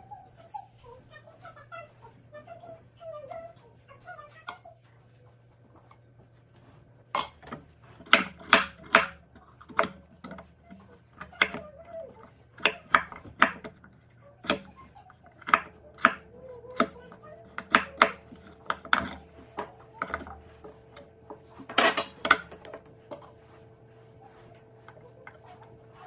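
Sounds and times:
knife chopping on wooden board: 7.2 - 10.5.

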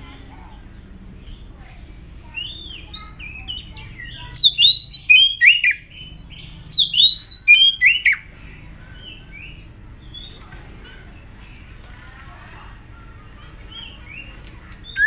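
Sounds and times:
bird singing whistled notes: 2.3 - 10.3, 13.7 - 15.0.

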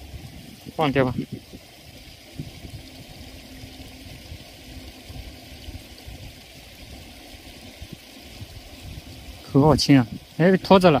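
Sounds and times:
water rushing through sluice gate: 0.0 - 11.0.

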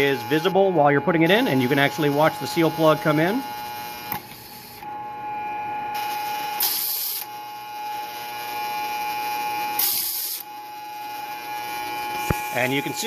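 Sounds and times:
electric hum of bowl feeder: 0.0 - 13.0
compressed air blast: 9.8 - 10.4.

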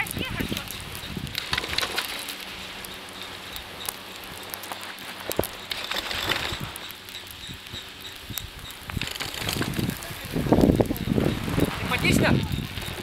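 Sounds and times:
small clicks and crackles: 0.0 - 13.0
skis hissing through snow: 9.0 - 13.0.

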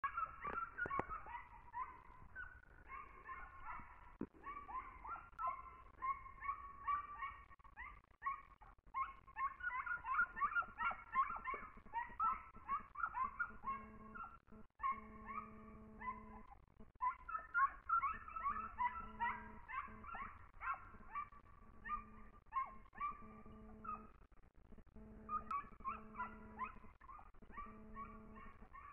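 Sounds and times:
hounds yelping and baying: 0.0 - 24.3, 25.0 - 28.9
steady low hum: 24.8 - 28.8.

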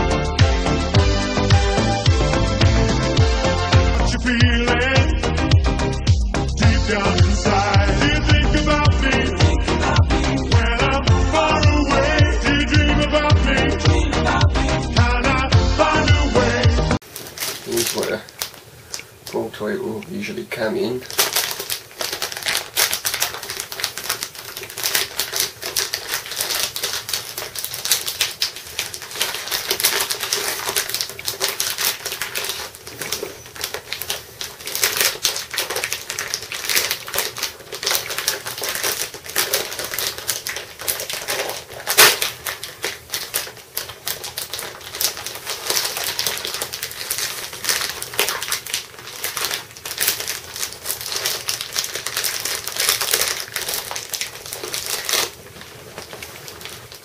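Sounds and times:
plastic packaging clicking and rustling: 17.0 - 57.0.

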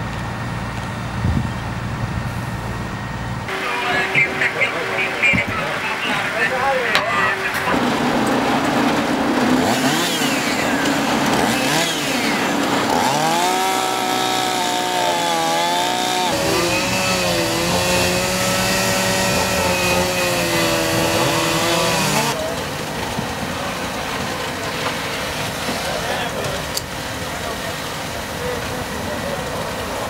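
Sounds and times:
chainsaw cutting at high revs: 9.3 - 22.4.

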